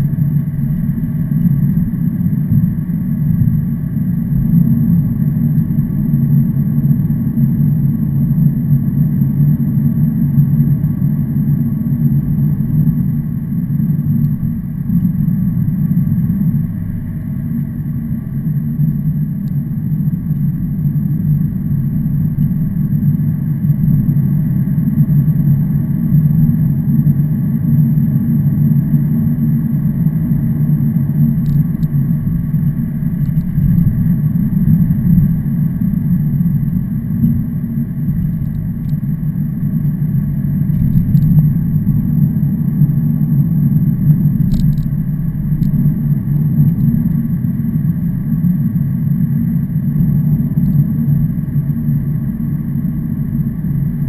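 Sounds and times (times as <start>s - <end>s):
vehicle engine rumble: 0.0s - 54.0s
faint ticks: 44.4s - 45.0s.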